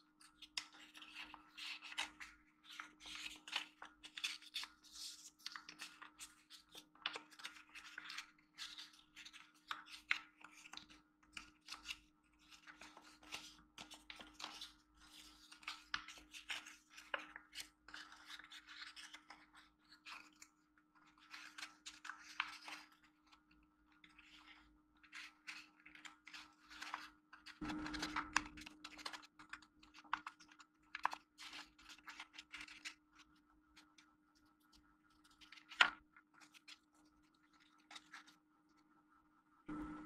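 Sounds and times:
paper crinkling and rustling: 0:00.2 - 0:38.8
faint steady hum: 0:36.9 - 0:40.0.

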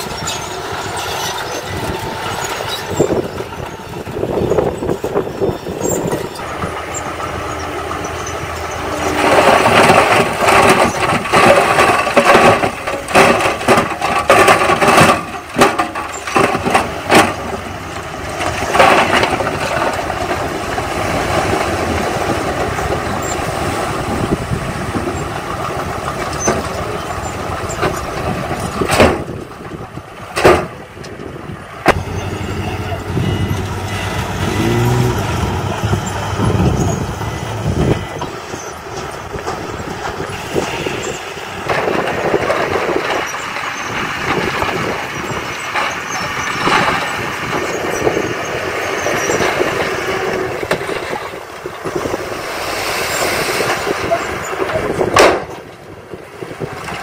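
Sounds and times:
truck engine revving: 0:00.0 - 0:29.8, 0:31.8 - 0:55.6
stone and soil clattering: 0:00.1 - 0:30.8.

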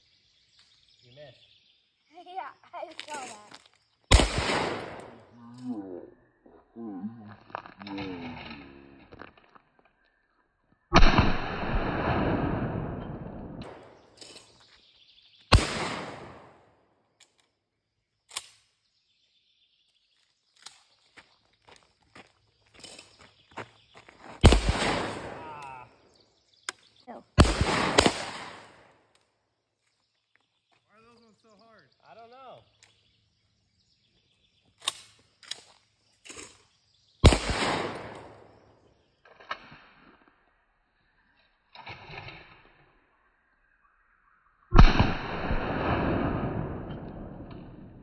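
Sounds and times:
shotgun shot: 0:04.1 - 0:05.3, 0:10.9 - 0:14.0, 0:15.5 - 0:16.6, 0:24.4 - 0:25.8, 0:27.4 - 0:28.9, 0:37.2 - 0:38.5, 0:44.7 - 0:48.0.

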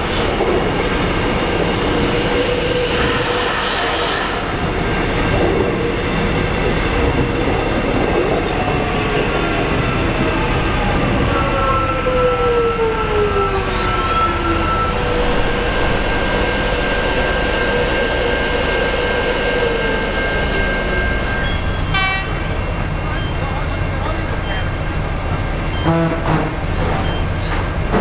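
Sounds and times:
train running and wheel noise: 0:00.0 - 0:28.0.

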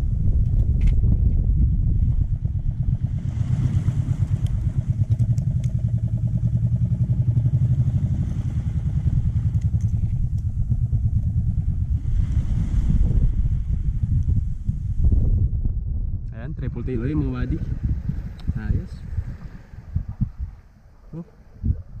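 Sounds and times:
boat engine running: 0:00.0 - 0:15.4, 0:17.0 - 0:22.0.

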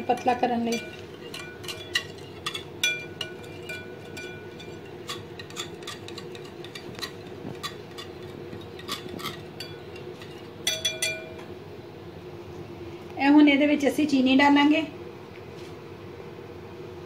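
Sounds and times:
whisk clinking against glass bowl: 0:00.0 - 0:11.5
faint steady hum: 0:00.0 - 0:17.0.

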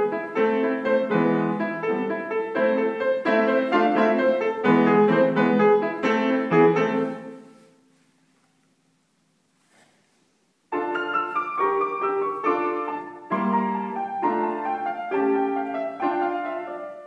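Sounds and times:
piano chords: 0:00.0 - 0:07.7, 0:10.7 - 0:17.0.

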